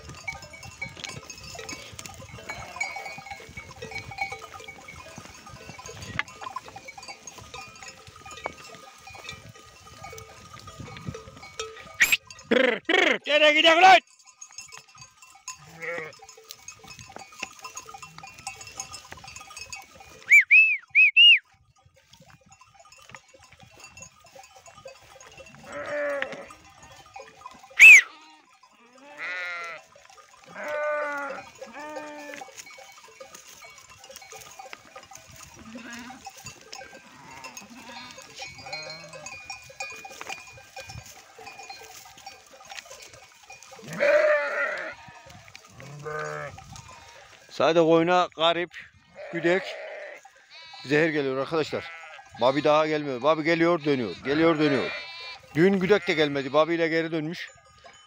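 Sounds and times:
bells tinkling: 0.0s - 48.8s, 50.2s - 58.0s
sheep bleating: 1.7s - 3.4s, 15.5s - 16.3s, 25.5s - 26.9s, 27.6s - 32.6s, 35.6s - 39.4s, 43.8s - 47.5s, 49.0s - 56.8s
short high calls: 12.0s - 12.3s, 20.2s - 21.5s, 27.8s - 28.2s.

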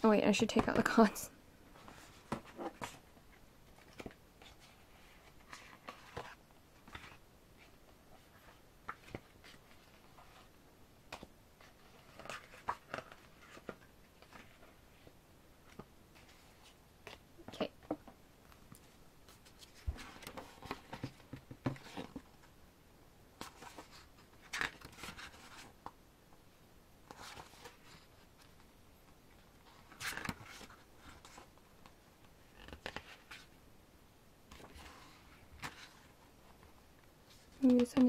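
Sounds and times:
paper pages rustling: 1.8s - 10.5s, 11.1s - 17.2s, 18.5s - 22.3s, 23.4s - 25.8s, 29.4s - 33.5s, 34.5s - 38.0s.

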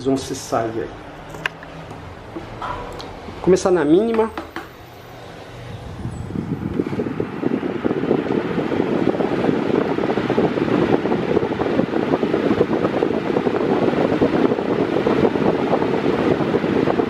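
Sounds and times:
fan airflow buffeting microphone: 0.0s - 17.0s.

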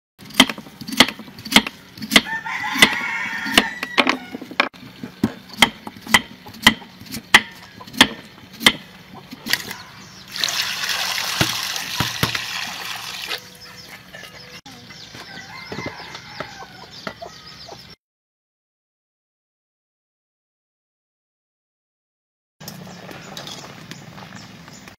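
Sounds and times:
knife chopping on wooden block: 0.3s - 3.8s, 5.2s - 8.8s
chicken calling: 13.4s - 18.0s.

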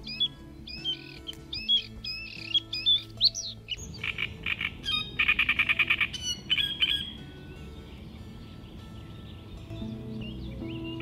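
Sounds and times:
songbird chattering trill: 0.0s - 7.2s
songbird whistled and buzzy song: 0.0s - 11.0s.

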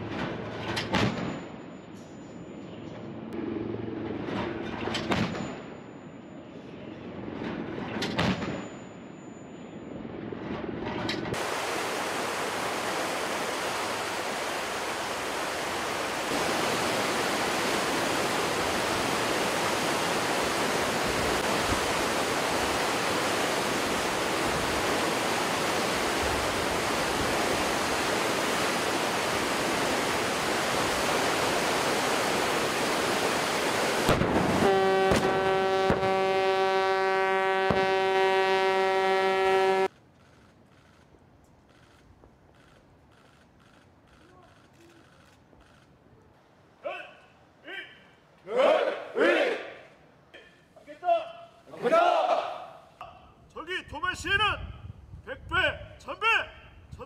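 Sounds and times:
rushing wind and sea: 10.7s - 36.4s, 54.2s - 56.0s
deck gun firing booms: 34.0s - 36.1s.

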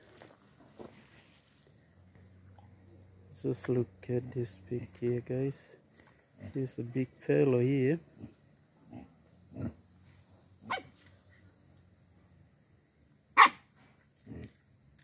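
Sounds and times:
faint animal sounds: 0.8s - 12.4s, 13.3s - 15.0s
dog barking: 10.7s - 10.9s, 13.4s - 13.7s.

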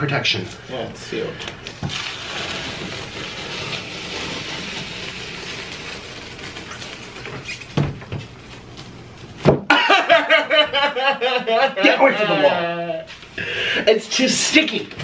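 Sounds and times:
tear-strip ripping off cardboard: 1.8s - 7.8s.

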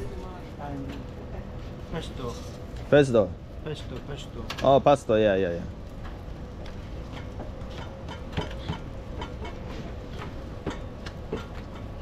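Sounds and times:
steady low rumble: 0.0s - 12.0s
light clicks and knocks of pans: 7.1s - 12.0s.

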